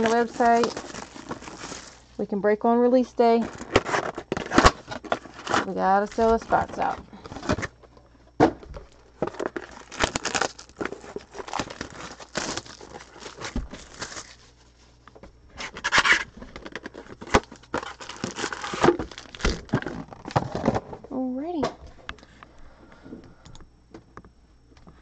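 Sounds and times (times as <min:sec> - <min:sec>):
plastic wrap crinkling and tearing: 0:00.0 - 0:02.2, 0:03.4 - 0:07.7, 0:08.8 - 0:14.8, 0:15.6 - 0:20.8.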